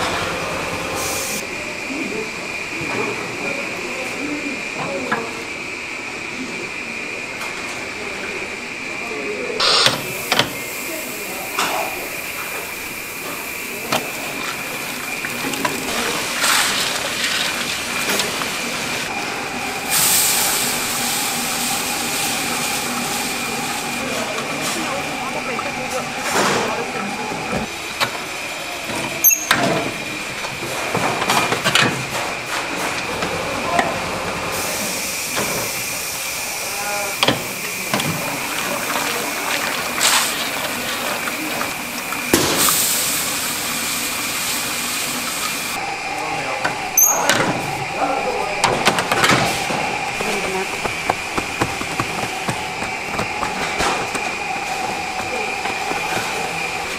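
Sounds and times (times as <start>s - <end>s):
stirring kettle motor hum and whine: 0.0s - 56.9s
grains pouring and churning: 13.6s - 19.0s, 37.7s - 45.7s
loud rushing hiss: 18.6s - 24.2s.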